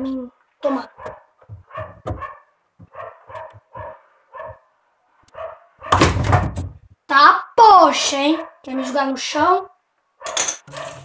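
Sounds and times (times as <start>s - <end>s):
dog barking: 0.9s - 4.7s, 5.3s - 6.5s, 8.2s - 9.0s, 9.6s - 11.0s.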